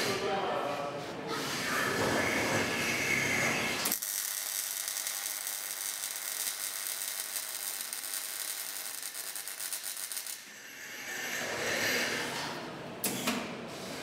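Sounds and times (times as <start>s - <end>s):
welding arc crackling: 3.8s - 10.5s.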